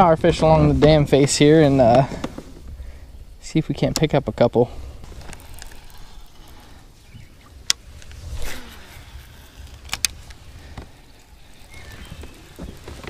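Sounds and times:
wind rumbling on microphone: 0:00.0 - 0:13.0
fishing reel clicking: 0:05.0 - 0:06.9, 0:07.6 - 0:13.0
fishing rod swishing: 0:07.8 - 0:12.8.

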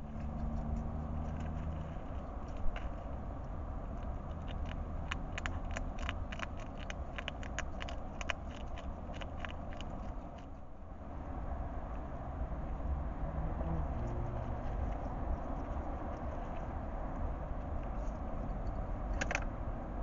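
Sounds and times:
hedgehog chewing and crunching: 0:00.0 - 0:11.2, 0:11.8 - 0:19.5
steady low hum: 0:00.0 - 0:20.0.

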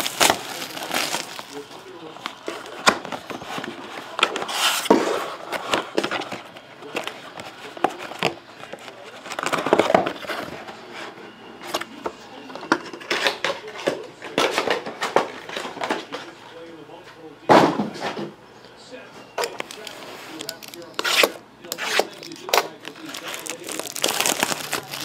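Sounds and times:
cardboard rustling and scraping: 0:00.0 - 0:12.0, 0:19.5 - 0:25.0.

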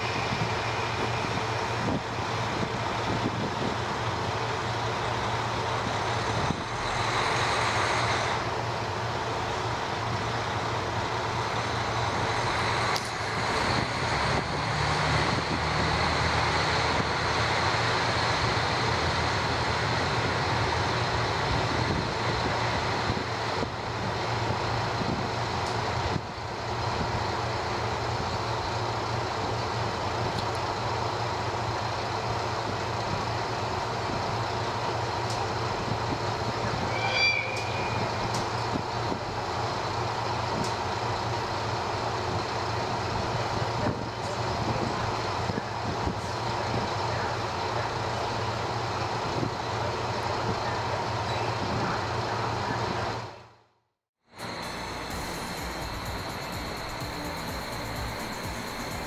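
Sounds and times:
rushing background noise: 0:00.0 - 0:53.5, 0:54.3 - 0:59.0
diesel railcar engine hum: 0:00.0 - 0:59.0
short high-pitched tone: 0:36.8 - 0:38.2, 0:54.4 - 0:59.0.

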